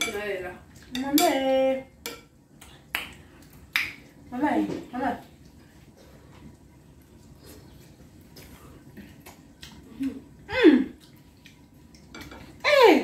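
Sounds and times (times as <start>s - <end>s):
forks clicking on frying pan: 0.8s - 2.3s.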